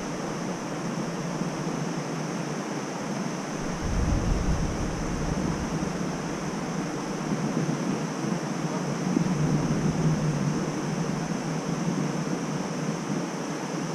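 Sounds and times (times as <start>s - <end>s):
outdoor background noise: 0.0s - 13.9s
low rumble: 3.6s - 7.3s.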